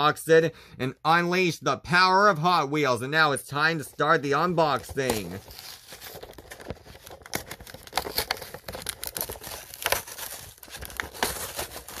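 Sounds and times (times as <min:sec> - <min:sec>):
plastic and cardboard crinkling: 0:03.7 - 0:12.0.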